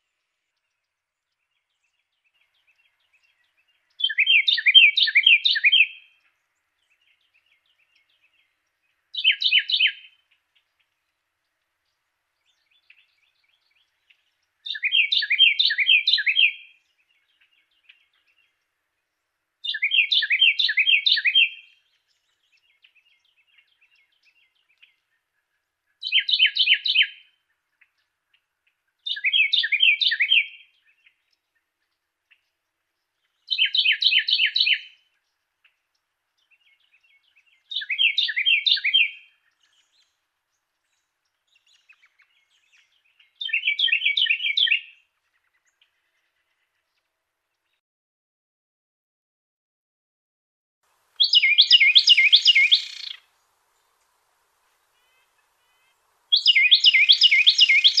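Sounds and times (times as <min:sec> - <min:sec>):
faint soft bird notes: 0:00.0 - 0:47.8, 0:50.9 - 0:58.0
wren singing: 0:00.2 - 0:10.9, 0:12.4 - 0:18.8, 0:19.6 - 0:25.1, 0:26.0 - 0:28.0, 0:29.0 - 0:31.4, 0:33.2 - 0:35.0, 0:35.9 - 0:40.2, 0:40.9 - 0:45.7, 0:51.2 - 0:54.0, 0:54.8 - 0:58.0.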